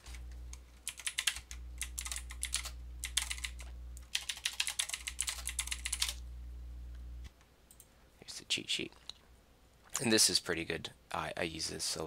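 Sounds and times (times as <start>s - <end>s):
steady low hum: 0.0s - 12.0s
typing on computer keyboard: 0.8s - 6.2s.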